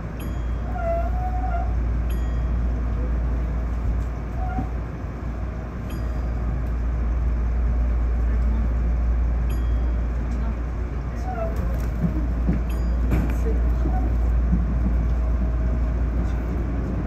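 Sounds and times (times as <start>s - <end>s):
train wheels rumbling on rails: 0.0s - 17.0s
faint train squeal: 0.2s - 3.1s, 4.3s - 4.9s, 11.1s - 11.8s.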